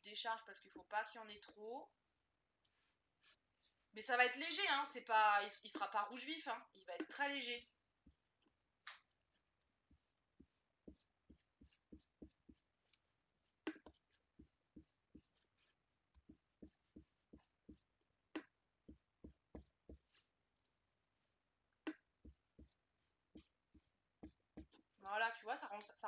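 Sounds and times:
brush tapping on paper: 0:08.0 - 0:20.2, 0:21.9 - 0:25.0
brush knocking on ink pad: 0:09.9 - 0:12.6, 0:13.7 - 0:15.4, 0:16.1 - 0:20.2, 0:21.9 - 0:24.9.

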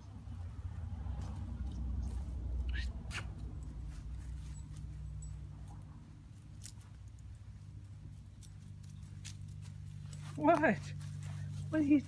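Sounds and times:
low steady hum: 0:00.0 - 0:12.0
dog moving through dry leaves: 0:07.6 - 0:12.0.

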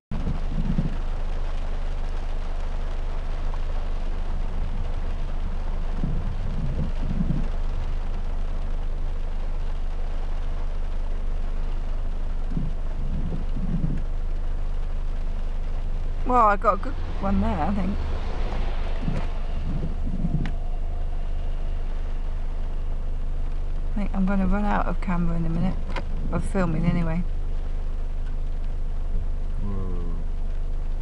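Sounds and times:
car engine and road rumble: 0:00.1 - 0:31.0
rain on car bodywork: 0:00.1 - 0:31.0.

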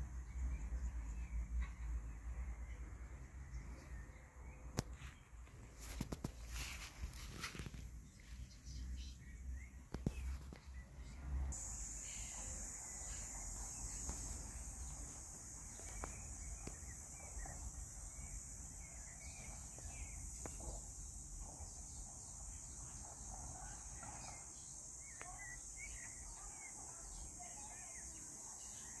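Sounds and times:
faint bird chirps: 0:00.0 - 0:29.0
high insect drone: 0:10.0 - 0:29.0.

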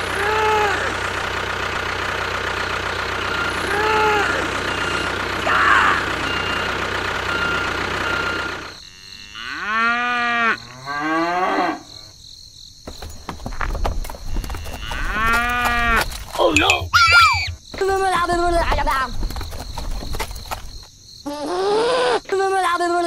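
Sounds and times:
engine running: 0:00.0 - 0:08.8
cow mooing: 0:08.9 - 0:12.1.

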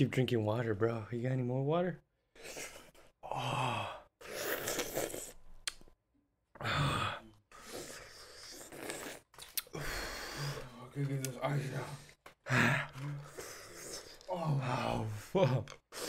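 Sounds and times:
man groaning in pain: 0:14.3 - 0:15.4.

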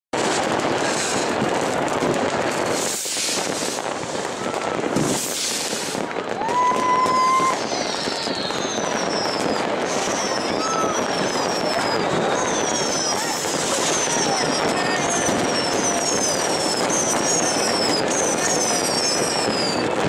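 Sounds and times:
fireworks crackling and banging: 0:00.1 - 0:20.0
rising firework whistle: 0:00.2 - 0:20.0
short falling whistles: 0:06.6 - 0:14.5.

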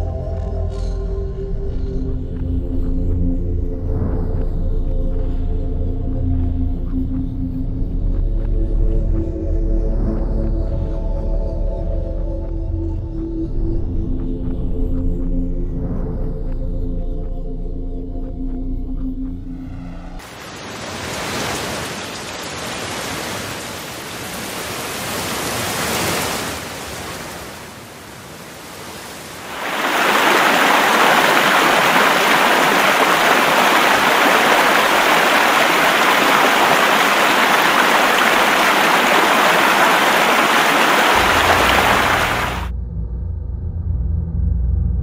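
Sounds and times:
heavy rain pouring: 0:20.2 - 0:42.7
water rushing through spillway: 0:20.2 - 0:42.7.

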